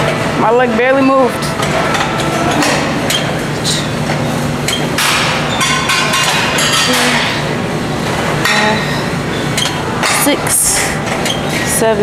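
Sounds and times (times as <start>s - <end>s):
gym hum: 0.0s - 12.0s
metal weights clanking: 1.2s - 7.6s.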